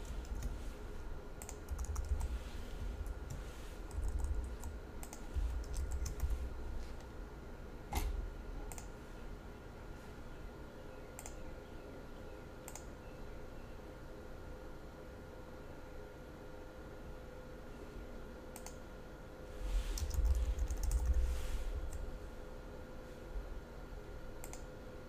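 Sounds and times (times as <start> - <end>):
keyboard typing: 0.0 - 0.6, 1.4 - 2.4, 3.0 - 6.4, 20.0 - 21.2
faint steady hum: 0.0 - 25.0.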